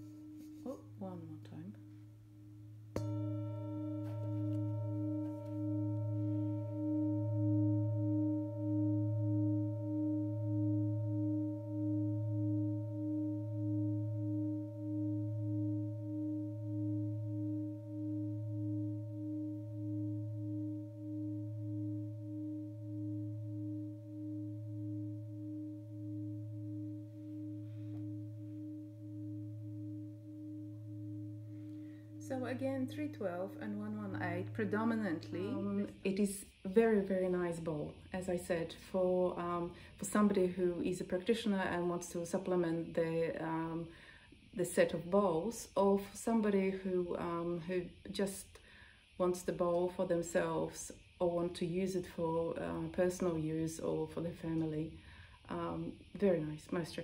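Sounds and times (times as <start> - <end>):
soft mallet strike on bowl: 0.0 - 9.1
singing bowl ringing: 0.0 - 57.0.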